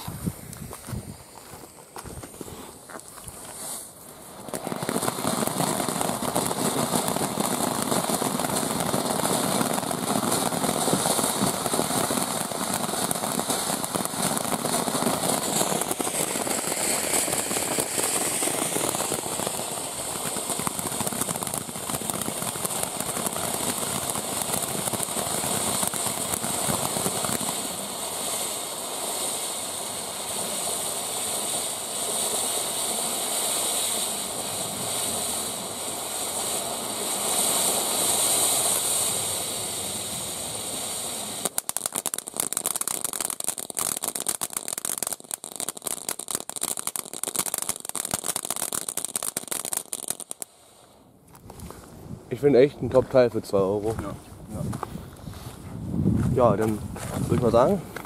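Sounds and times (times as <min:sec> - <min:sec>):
firework fountain hissing and crackling: 0:00.0 - 0:58.0.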